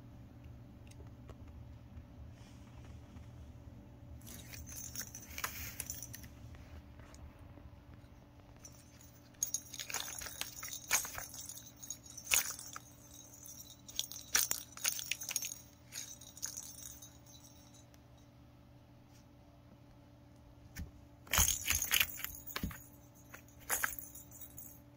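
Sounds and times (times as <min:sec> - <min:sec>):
toy bell ball jingling: 0:04.2 - 0:06.3, 0:08.6 - 0:17.9, 0:21.3 - 0:24.9.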